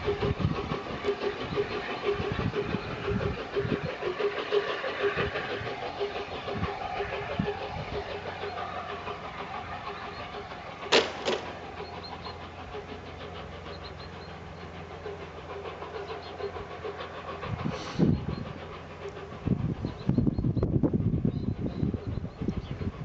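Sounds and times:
steam locomotive exhaust beats: 0.0s - 23.0s
sharp clicks: 10.9s - 12.0s.

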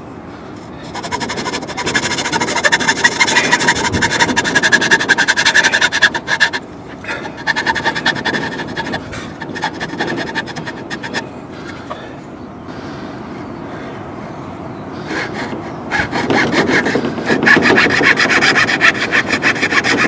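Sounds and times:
hand saw cutting plywood: 0.8s - 11.3s, 15.4s - 20.0s.

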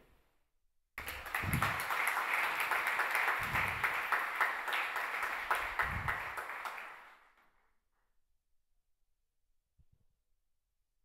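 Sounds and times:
audience applauding: 1.0s - 7.3s.

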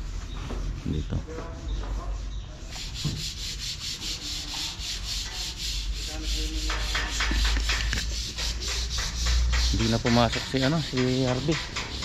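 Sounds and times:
sandpaper rubbing back and forth: 0.0s - 12.0s.

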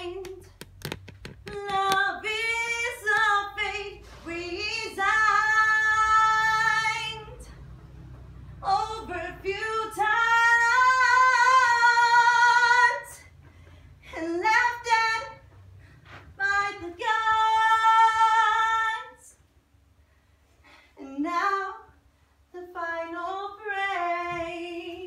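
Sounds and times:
woman singing unaccompanied: 0.0s - 0.6s, 1.4s - 7.5s, 8.6s - 13.3s, 14.1s - 15.4s, 16.4s - 19.4s, 21.0s - 25.0s.

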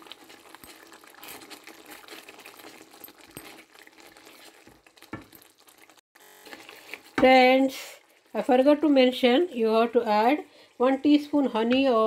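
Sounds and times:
gravy bubbling and popping: 0.0s - 6.0s, 6.6s - 12.0s
wooden spatula stirring: 0.0s - 10.4s.

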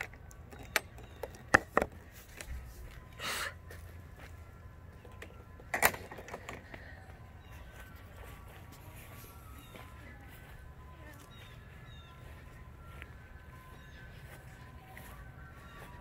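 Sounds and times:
sharp clicks and knocks: 0.0s - 2.0s.

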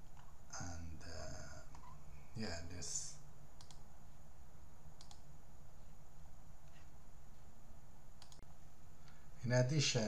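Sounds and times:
steady low hum: 0.0s - 10.0s
computer mouse clicks: 3.6s - 3.9s, 5.0s - 5.3s, 8.2s - 8.6s.

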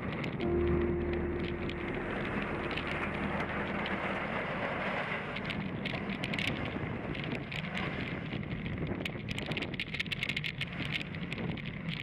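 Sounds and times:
faint hum: 0.4s - 5.5s
bicycle tyres rolling on asphalt: 3.8s - 12.0s
light crackling ticks: 5.4s - 12.0s.

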